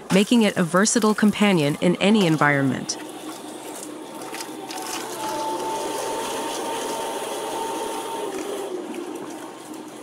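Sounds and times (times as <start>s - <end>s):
stump shredder grinding: 3.0s - 8.9s.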